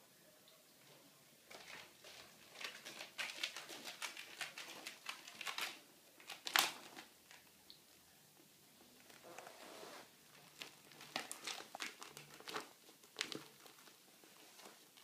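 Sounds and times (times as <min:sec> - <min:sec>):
claws scratching plastic tube: 0:01.5 - 0:07.1.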